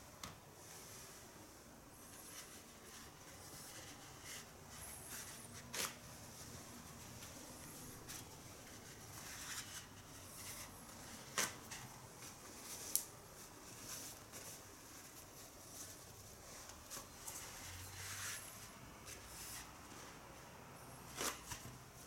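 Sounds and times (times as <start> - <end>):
toilet paper rustling: 2.1 - 20.4
paper ripping: 5.1 - 6.1.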